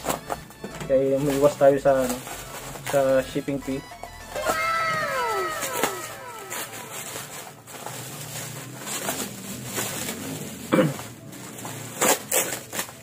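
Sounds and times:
bubble wrap crinkling: 1.1 - 3.6, 4.4 - 13.0.

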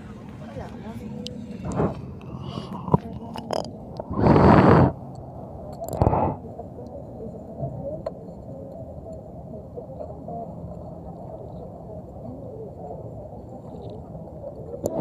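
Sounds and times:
bus rumbling: 0.0 - 5.1.

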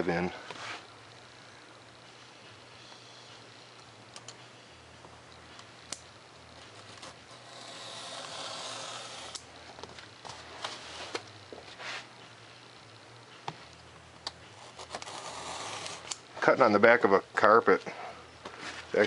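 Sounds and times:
blade and ruler clicking: 7.4 - 9.5.

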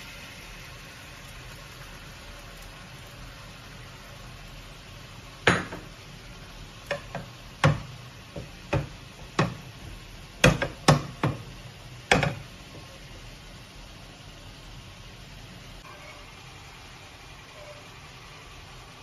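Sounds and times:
spatula knocking on frying pan: 5.4 - 6.0, 6.8 - 12.5.

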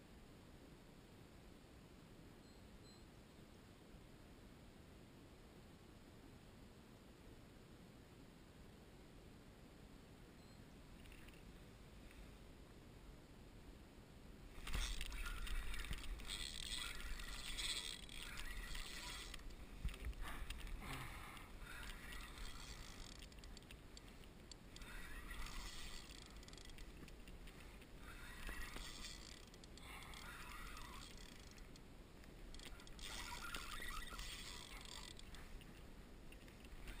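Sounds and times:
low steady rumble: 3.2 - 37.0.

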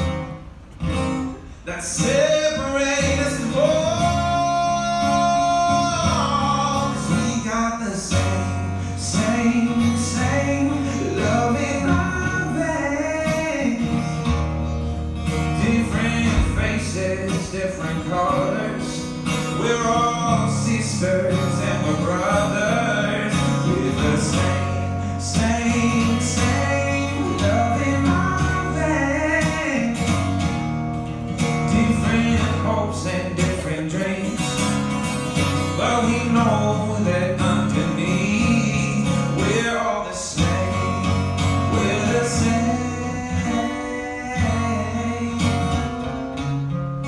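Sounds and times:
acoustic guitars playing: 0.0 - 47.0
people singing: 19.6 - 29.9, 35.8 - 45.9.

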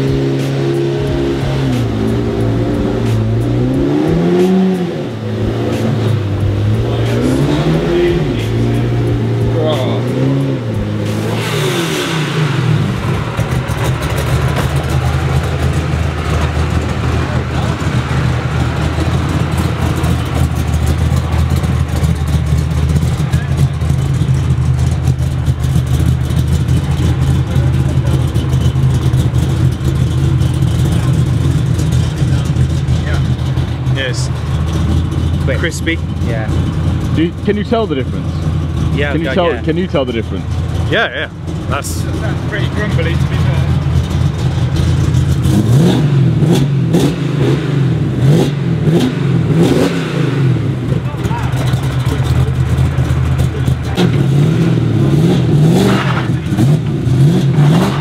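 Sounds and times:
music playing: 0.0 - 12.5
car engine revving: 0.0 - 58.0.

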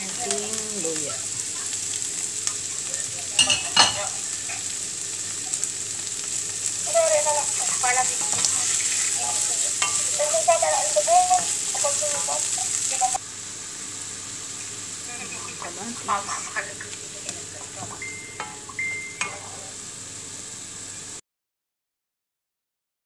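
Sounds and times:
onions sizzling in a frying pan: 0.0 - 21.2
wooden spoon scraping a pan: 6.9 - 13.2, 16.0 - 16.7.

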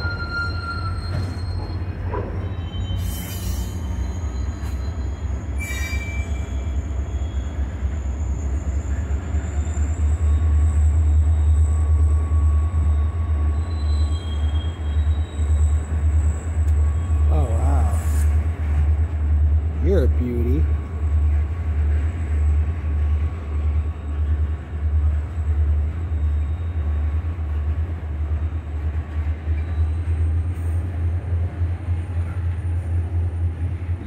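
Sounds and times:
high wheel squeal: 0.0 - 18.4, 25.3 - 27.3, 29.5 - 30.9
freight cars rumbling on rails: 0.0 - 34.0.

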